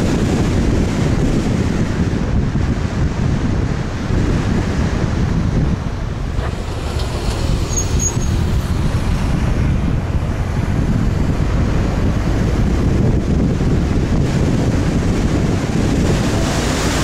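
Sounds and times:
road and tyre rumble: 0.0s - 17.0s
wind buffeting microphone: 0.0s - 17.0s.

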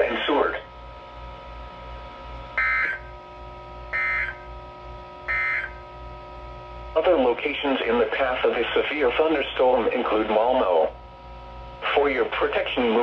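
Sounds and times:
faint steady hum: 0.0s - 13.0s
digital data tone bursts: 4.0s - 4.4s, 5.3s - 5.8s.

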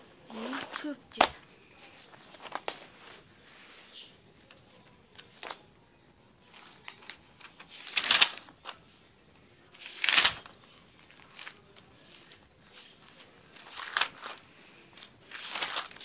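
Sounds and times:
notebook pages flipping: 0.3s - 3.8s, 4.4s - 5.6s, 6.4s - 8.9s, 9.7s - 16.0s
paper rustles and taps: 0.5s - 1.4s, 2.1s - 3.0s, 6.8s - 8.8s, 9.8s - 12.4s, 13.1s - 14.4s, 15.0s - 16.0s.

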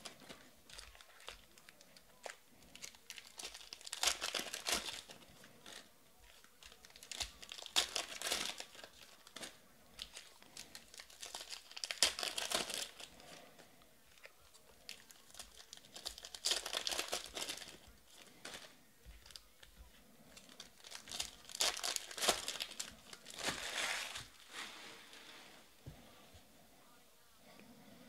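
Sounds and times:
foil packs crinkling and tearing: 0.0s - 13.4s, 14.9s - 19.4s, 20.4s - 24.5s.

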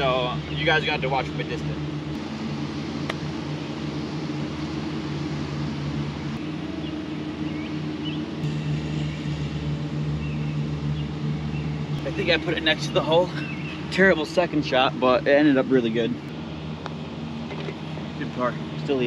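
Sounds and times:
low mechanical hum: 0.0s - 19.0s
outdoor background noise: 0.0s - 19.0s.

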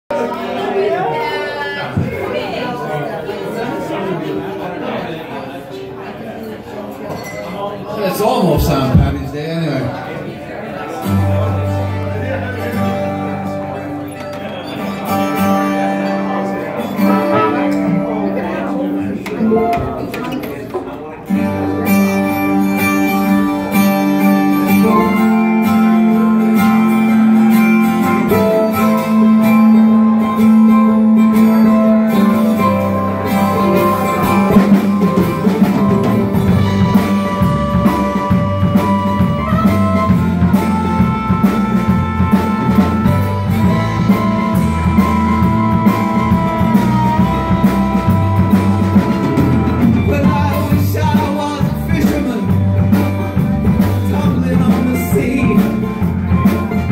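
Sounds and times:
drums: 1.8s - 2.6s, 8.0s - 10.0s, 11.0s - 56.9s
acoustic guitar: 6.2s - 56.9s
keyboard: 6.3s - 56.9s
harmonica bending notes: 11.4s - 20.5s, 21.3s - 56.9s
electric bass: 21.3s - 56.9s.

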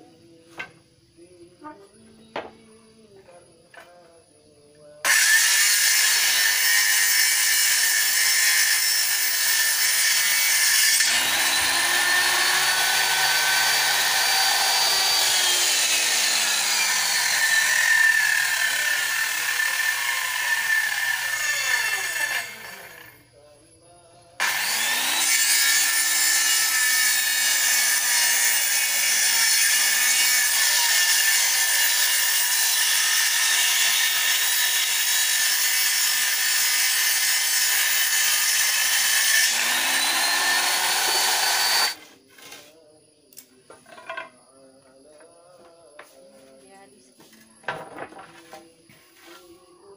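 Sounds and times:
circular saw cutting wood: 5.0s - 23.2s, 24.4s - 42.6s.

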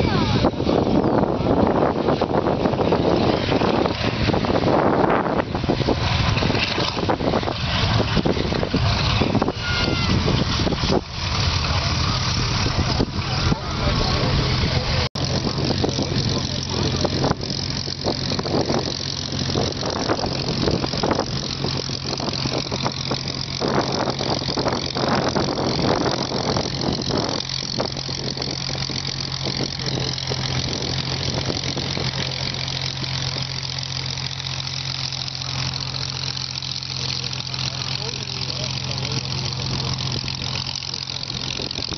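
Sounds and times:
piston engine running at low power: 0.0s - 41.9s.

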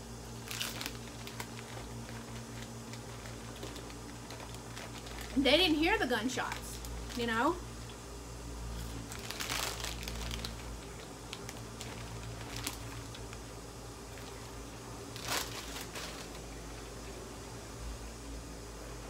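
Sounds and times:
packaging crinkling: 0.4s - 7.5s, 8.8s - 13.5s, 14.1s - 16.9s.

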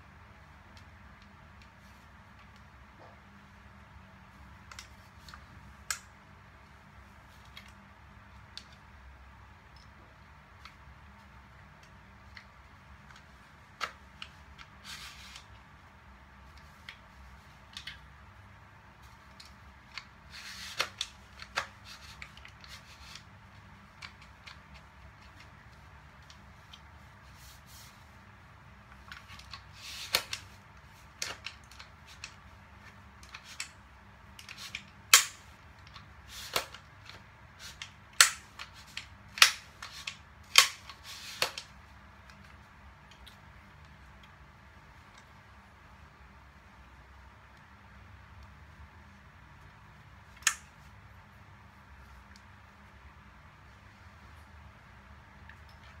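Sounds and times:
plastic and metal gun clicks: 34.4s - 41.7s
loud gun snaps: 35.1s - 35.5s.

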